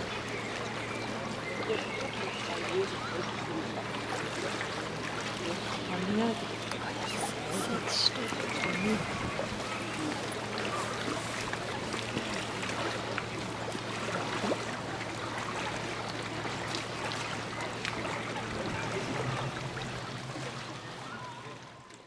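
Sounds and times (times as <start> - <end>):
water lapping and trickling: 0.0 - 22.0
low hum: 15.3 - 22.0.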